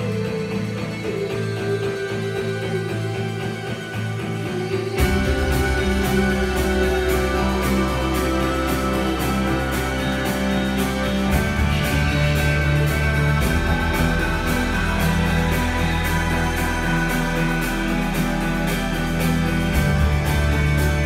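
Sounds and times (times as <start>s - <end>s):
music over loudspeakers: 0.0s - 21.0s.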